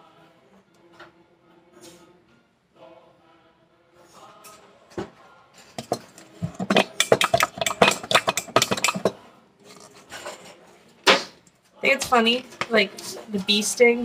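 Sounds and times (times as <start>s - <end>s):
utensil clinking against a dish: 5.8s - 9.2s.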